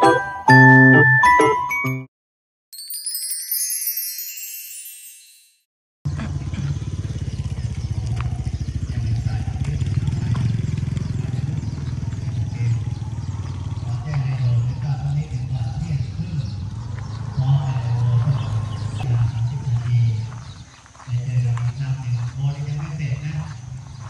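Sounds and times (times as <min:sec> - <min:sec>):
sparkling chime sound effect: 0:02.7 - 0:05.7.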